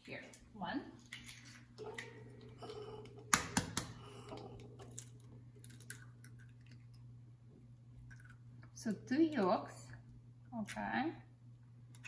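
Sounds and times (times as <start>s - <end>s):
low steady hum: 0.0s - 12.0s
egg tapping: 3.1s - 4.8s.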